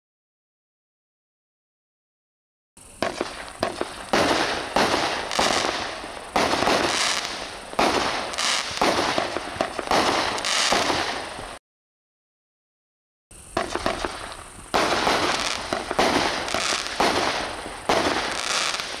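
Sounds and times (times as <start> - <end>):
fireworks crackling and sizzling: 2.8 - 11.6, 13.3 - 19.0
fireworks shots: 2.8 - 11.6, 13.3 - 19.0.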